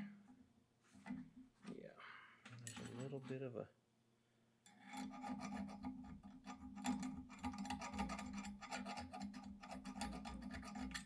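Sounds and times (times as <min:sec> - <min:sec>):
metal rasping and scraping: 0:04.7 - 0:11.0.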